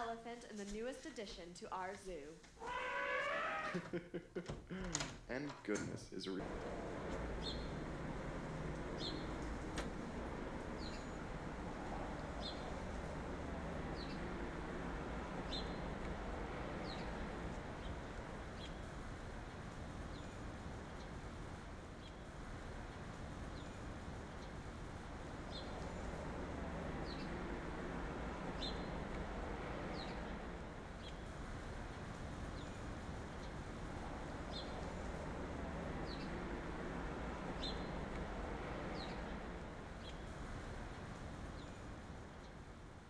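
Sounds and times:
low background rumble: 6.4s - 43.0s
steady background rush: 6.4s - 43.0s
high bird chirps: 7.1s - 9.6s.

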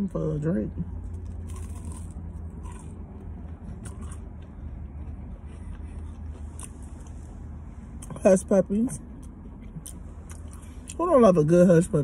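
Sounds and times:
person chewing food: 1.1s - 8.2s, 9.0s - 11.0s.

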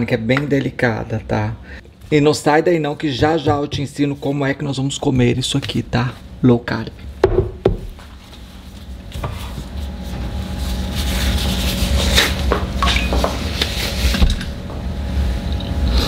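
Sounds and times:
steady low hum: 0.0s - 16.0s
dishware knocking on wooden board: 7.2s - 7.9s.

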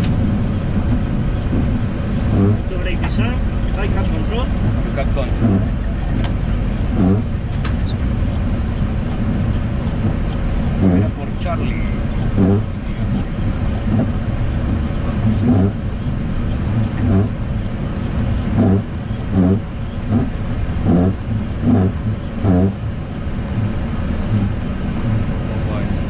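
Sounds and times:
aircraft cockpit rumble: 0.0s - 26.0s
windshield wipers squeaking swish: 0.0s - 26.0s.

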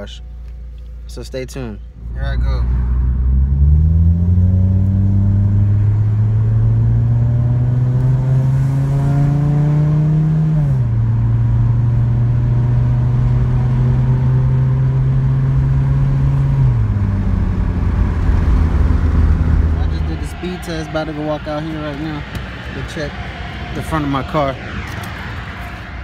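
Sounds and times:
car engine accelerating from inside: 2.0s - 22.0s.

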